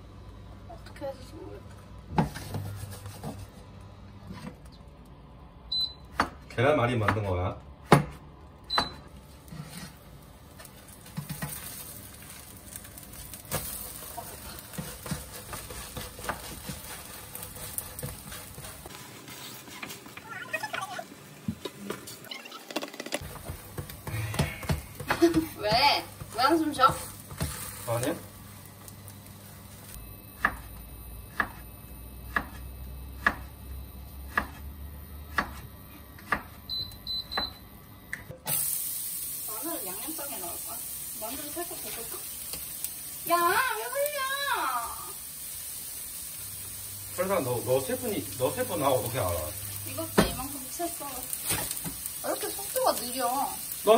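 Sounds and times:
egg sizzling: 9.1 - 33.4, 38.4 - 53.9
spatula scraping frying pan: 9.4 - 10.1, 10.7 - 20.1, 23.2 - 27.9.

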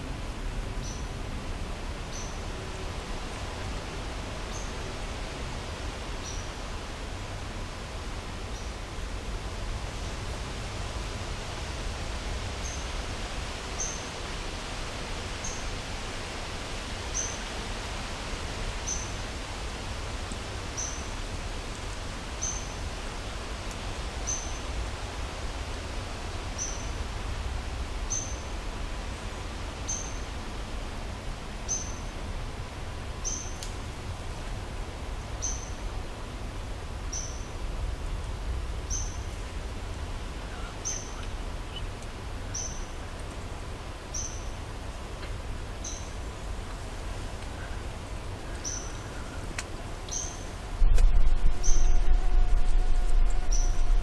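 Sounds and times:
background hiss: 0.0 - 54.0
low rumble: 50.6 - 54.0.

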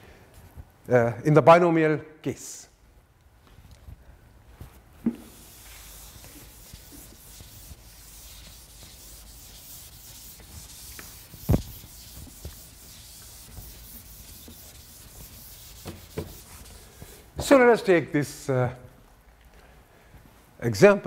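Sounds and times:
chalk scraping on blackboard: 5.2 - 17.1.

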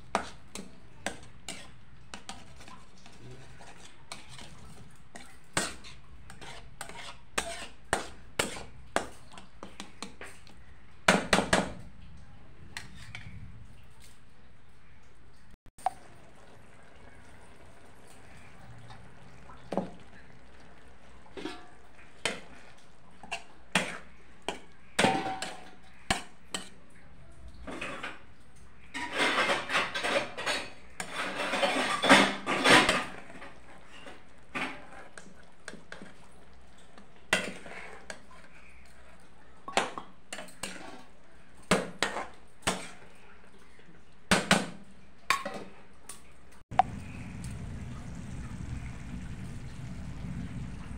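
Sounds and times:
metal spoon clinking and scraping pot: 0.0 - 10.5, 21.2 - 26.8, 27.6 - 41.1.

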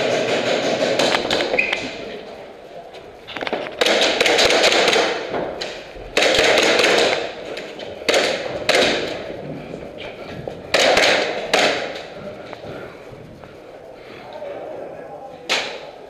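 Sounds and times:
airsoft pistol shots: 3.8 - 5.3, 6.2 - 7.3, 10.7 - 12.0.

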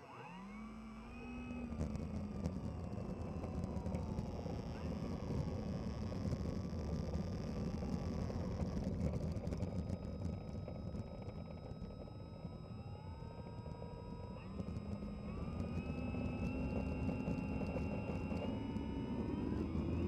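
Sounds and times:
motor and propeller whine: 0.0 - 20.0.

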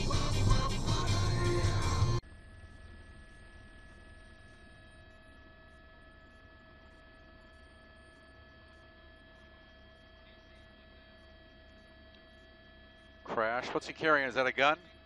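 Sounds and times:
high whine: 0.0 - 5.6, 13.2 - 15.0.

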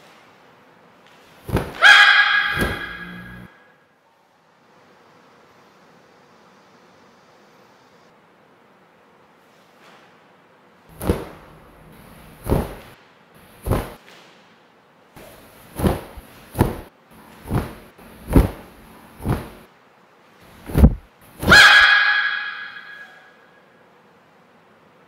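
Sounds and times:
uniform fabric snapping: 1.4 - 1.8, 2.4 - 3.5, 10.9 - 13.0, 13.6 - 14.2, 15.2 - 19.7, 20.6 - 21.6.

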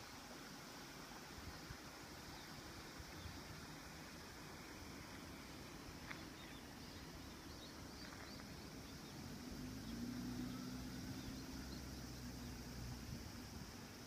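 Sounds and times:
distant engine hum: 3.0 - 14.0.

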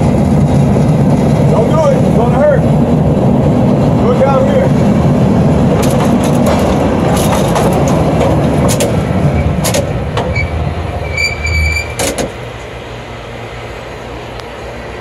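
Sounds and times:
cable car rumbling on rails: 0.0 - 15.0
sharp clicks and knocks: 5.8 - 10.4, 12.0 - 12.4
short high squeal: 10.3 - 12.0.

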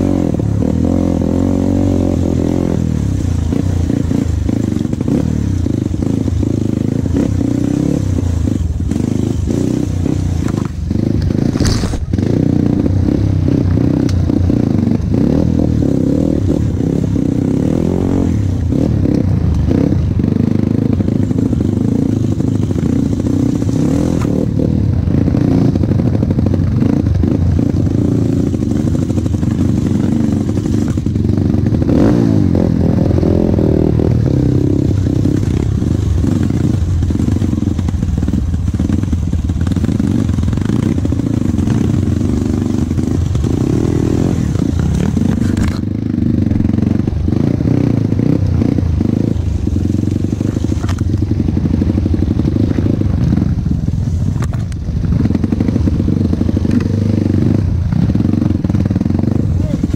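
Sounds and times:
motorcycle engine revving: 0.0 - 59.9
brush scraping against bike: 11.4 - 12.2.

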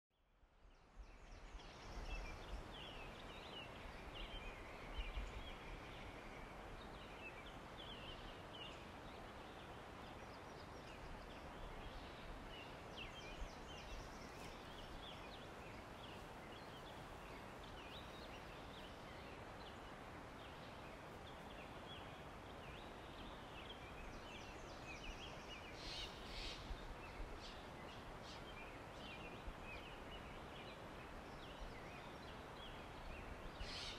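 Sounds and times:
steady background hiss: 0.4 - 33.9
small birds chirping: 0.8 - 33.9.

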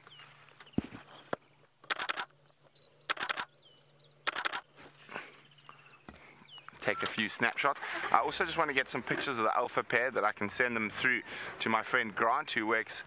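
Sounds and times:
camera shutter bursts: 1.8 - 2.3, 3.1 - 3.5, 4.2 - 4.7.

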